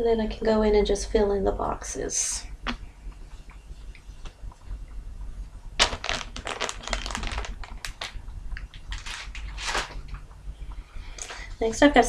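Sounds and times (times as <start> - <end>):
fabric and paper rustling: 5.8 - 8.2, 8.8 - 10.0.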